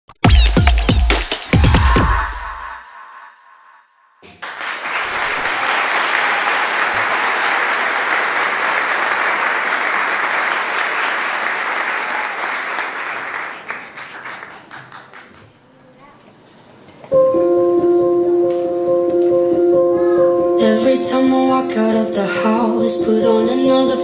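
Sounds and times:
audience applauding: 4.2 - 15.6.

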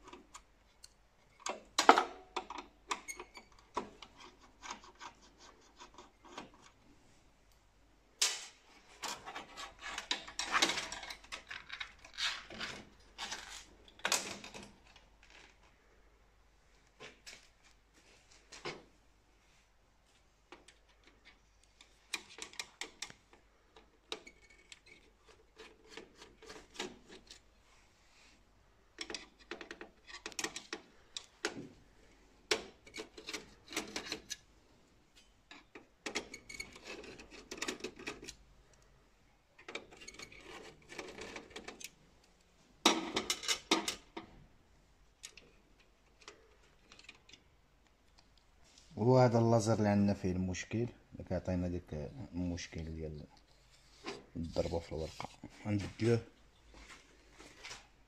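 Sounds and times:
screwdriver clicks and scrapes: 2.3 - 6.8, 23.8 - 27.4, 29.0 - 31.6.

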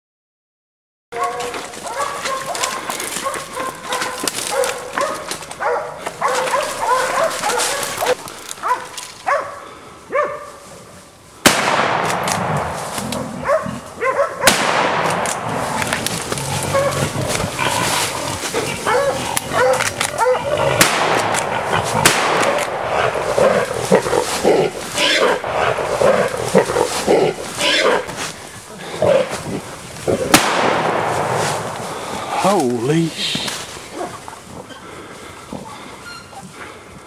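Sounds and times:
dogs barking and baying: 1.2 - 10.6, 13.1 - 14.6, 15.4 - 29.4, 33.8 - 34.8
rifle shot: 11.4 - 13.1, 14.4 - 16.1, 20.8 - 23.3, 30.3 - 31.9.

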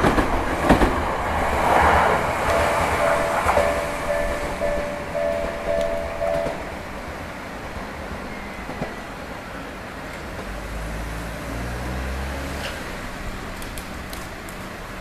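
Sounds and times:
level crossing alarm bell: 2.5 - 6.8.

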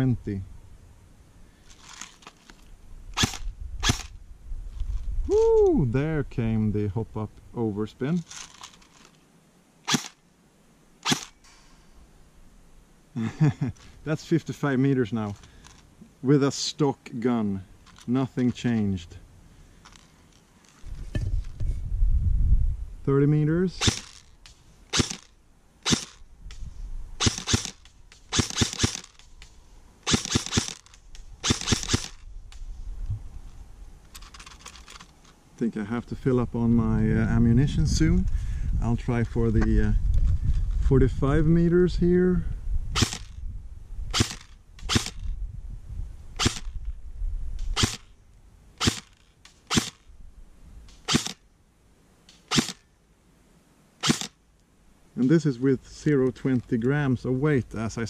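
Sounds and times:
airsoft gun firing single shots: 3.2 - 4.1, 9.8 - 10.2, 11.0 - 11.4, 23.8 - 24.3, 24.9 - 26.2, 27.2 - 29.3, 30.0 - 32.2, 43.0 - 43.4, 44.1 - 45.2, 46.4 - 46.8, 47.7 - 48.1, 48.8 - 50.0, 50.9 - 51.4, 52.3 - 52.9, 54.0 - 54.4.

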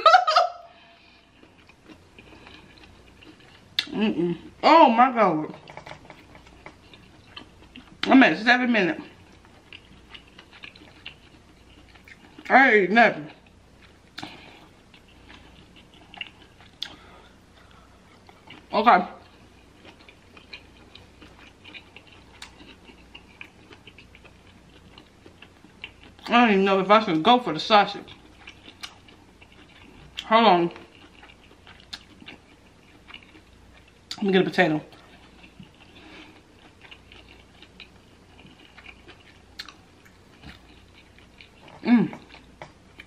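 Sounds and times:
wet chewing clicks and smacks: 5.6 - 8.1, 9.3 - 12.5, 13.3 - 17.1, 18.0 - 26.3, 28.0 - 34.3, 34.9 - 43.0.

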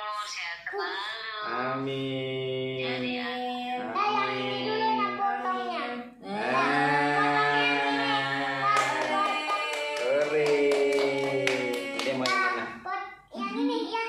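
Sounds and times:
family singing birthday song: 0.0 - 14.0
hand clapping: 7.7 - 12.6.

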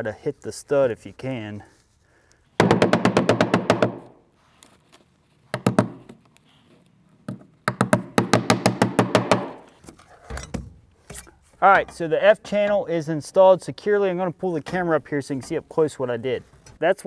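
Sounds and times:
hammer driving nails into metal: 2.6 - 4.1, 7.7 - 9.7.

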